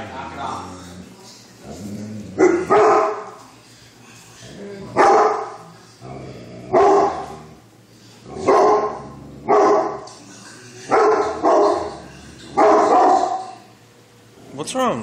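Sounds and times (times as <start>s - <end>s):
dog barking: 2.4s - 3.4s, 5.0s - 5.6s, 6.7s - 7.4s, 8.4s - 10.1s, 10.9s - 13.6s.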